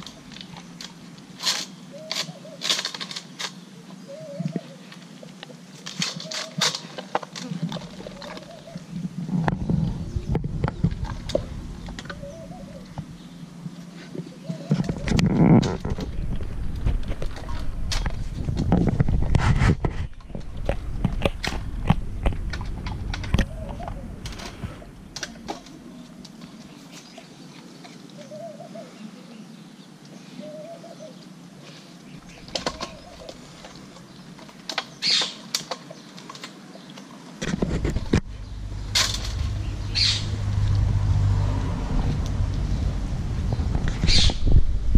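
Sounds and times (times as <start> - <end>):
low rumble: 7.8 - 13.7, 14.9 - 26.1, 37.6 - 44.9.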